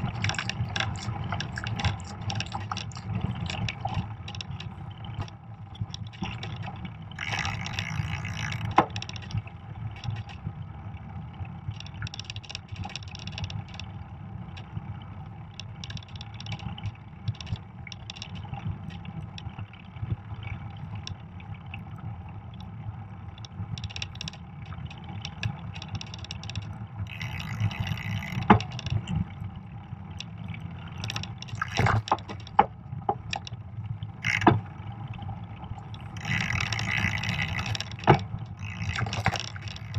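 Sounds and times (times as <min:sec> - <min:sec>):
bike tyres rumbling on snow: 0:00.0 - 0:05.3.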